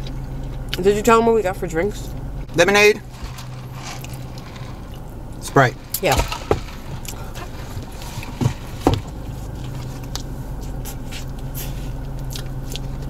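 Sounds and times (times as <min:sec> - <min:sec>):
car interior hum: 0:00.0 - 0:13.0
person chewing: 0:05.8 - 0:13.0.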